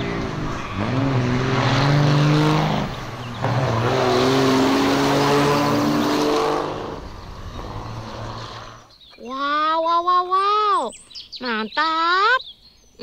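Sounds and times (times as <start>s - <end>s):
diesel trucks accelerating hard: 0.0s - 9.0s.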